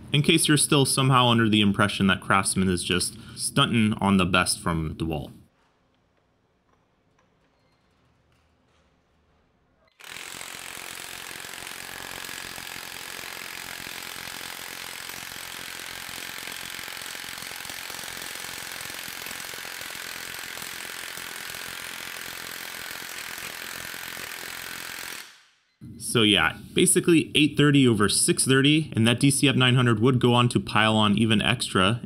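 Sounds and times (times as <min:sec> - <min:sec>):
impact wrench hammering a bolt: 0:05.6 - 0:25.4.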